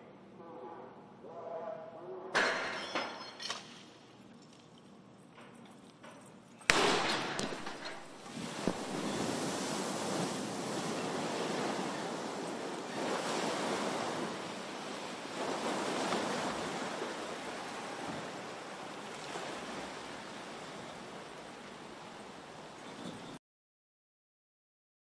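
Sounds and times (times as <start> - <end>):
waves sloshing in basin: 7.4 - 23.4.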